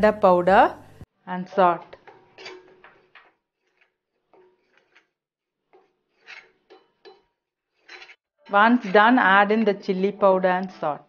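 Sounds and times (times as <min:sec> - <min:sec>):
spatula scraping a pan: 0:01.8 - 0:10.3.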